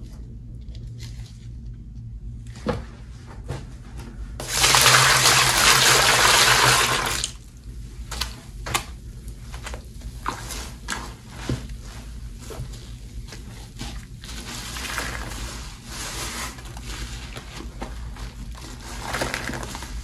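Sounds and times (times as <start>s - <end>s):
sponges squishing in water: 4.4s - 20.0s.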